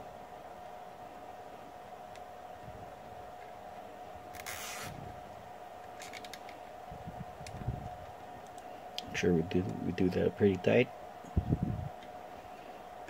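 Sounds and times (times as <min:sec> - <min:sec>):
cable tie zipping: 0:04.3 - 0:05.0
cable tie ratchet clicks: 0:05.8 - 0:06.6.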